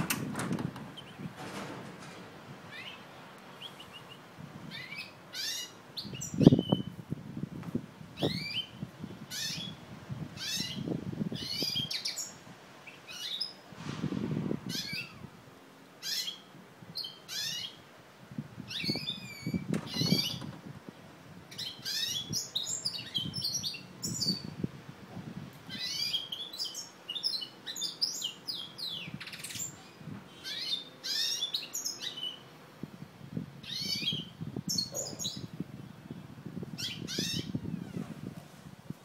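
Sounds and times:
finch twittering song: 2.7s - 7.0s, 8.2s - 9.8s, 10.4s - 13.6s, 16.0s - 17.8s, 18.7s - 20.6s, 21.5s - 24.5s, 25.7s - 32.5s, 33.6s - 37.8s.

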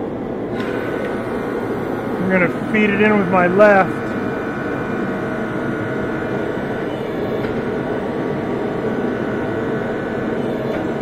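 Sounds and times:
motor and hydraulic pump running: 0.0s - 11.0s.

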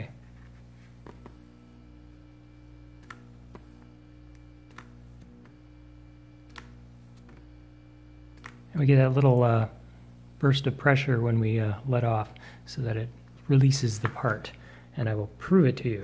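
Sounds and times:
aquarium pump humming: 0.0s - 16.0s
solenoid valve clicking: 3.0s - 5.7s, 6.4s - 7.6s, 8.2s - 9.4s.

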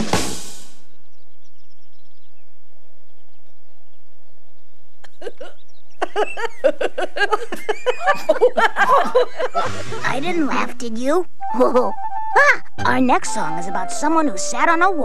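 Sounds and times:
stifled snicker: 5.0s - 10.0s
people giggling and laughing: 5.1s - 10.0s.

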